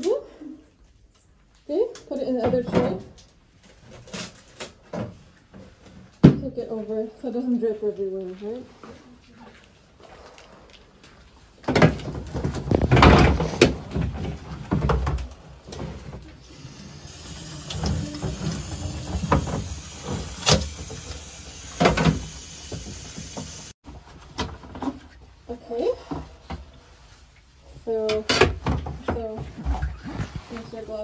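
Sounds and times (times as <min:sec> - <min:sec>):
hose sprayer hissing: 0:16.5 - 0:23.8.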